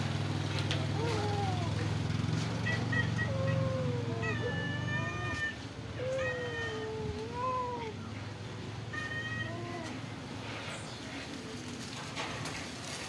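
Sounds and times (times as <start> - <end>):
cats meowing: 2.6 - 8.1, 8.9 - 10.1.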